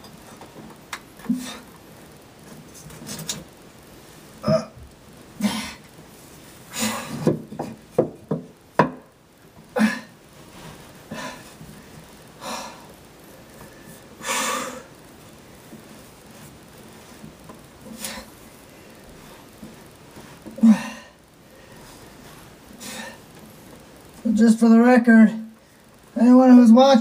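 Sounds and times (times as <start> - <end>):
knocks and bumps in enclosure: 7.0 - 9.1.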